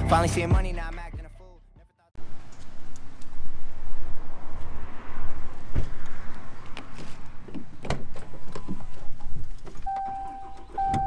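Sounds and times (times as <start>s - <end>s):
dashboard warning tone: 9.8s - 11.0s.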